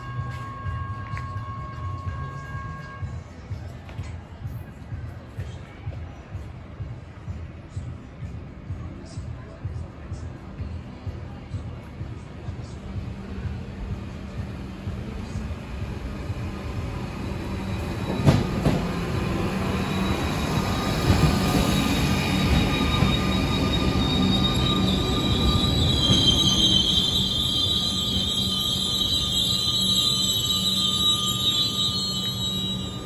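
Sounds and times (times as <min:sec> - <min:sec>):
train wheels rumbling: 0:11.5 - 0:33.0
high-pitched wheel squeal: 0:19.4 - 0:33.0.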